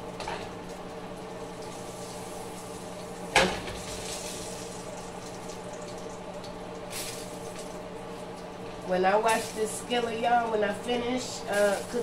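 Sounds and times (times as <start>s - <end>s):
steady low hum: 0.0s - 12.0s
pancakes sizzling in a skillet: 1.4s - 7.8s, 8.7s - 10.0s.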